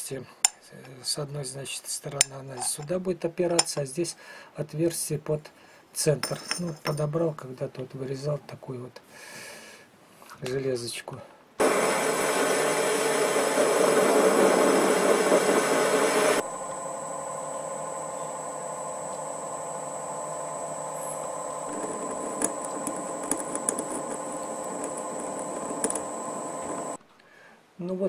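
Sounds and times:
lathe machining metal: 11.6s - 27.0s.

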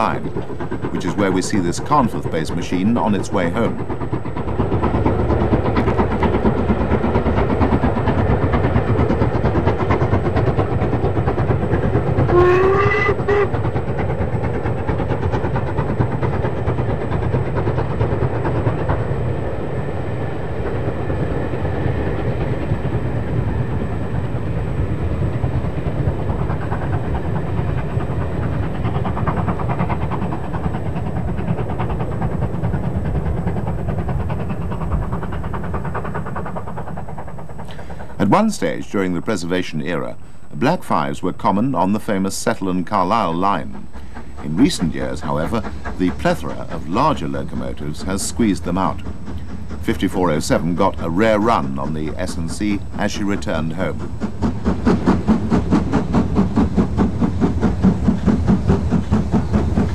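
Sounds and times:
steam locomotive exhaust beating: 0.0s - 59.9s
steam locomotive whistle: 12.3s - 13.6s.

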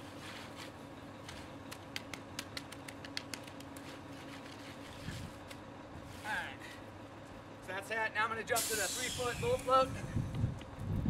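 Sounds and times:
hand float rubbing wet concrete: 0.0s - 1.5s, 3.7s - 5.4s.

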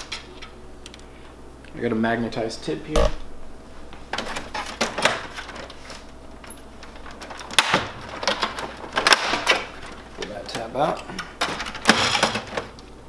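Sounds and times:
plastic clicks of document feeder: 6.8s - 12.9s.

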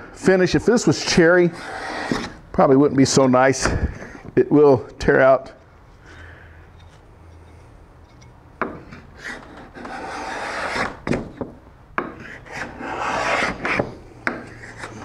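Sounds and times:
scraper rasping on wood: 1.5s - 2.4s, 9.2s - 11.0s, 12.1s - 15.0s.

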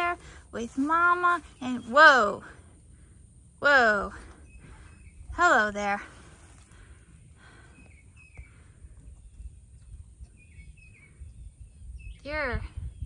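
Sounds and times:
faint bird chirps: 4.2s - 5.4s, 7.4s - 13.0s.

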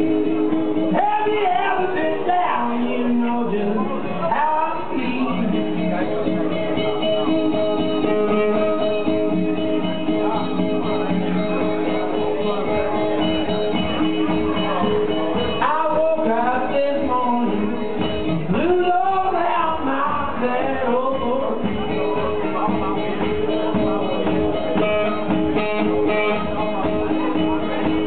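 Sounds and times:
man singing: 0.0s - 6.8s, 7.9s - 9.4s, 15.4s - 23.1s
blues guitar: 0.0s - 28.0s.

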